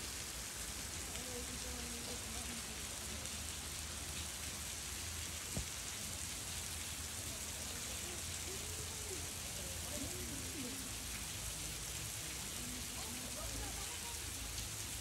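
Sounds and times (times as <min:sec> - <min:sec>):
river water flowing over rocks: 0:00.0 - 0:15.0
faint distant voices: 0:00.7 - 0:15.0.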